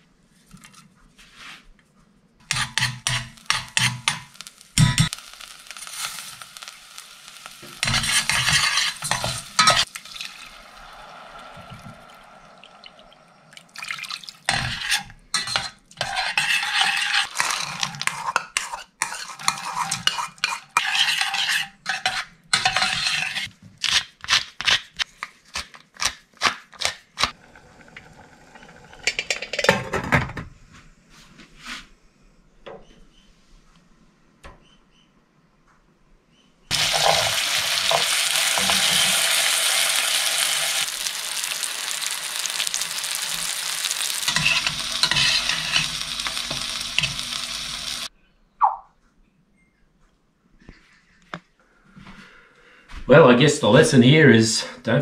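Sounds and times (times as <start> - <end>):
utensil stirring wet mixture: 12.8 - 23.5.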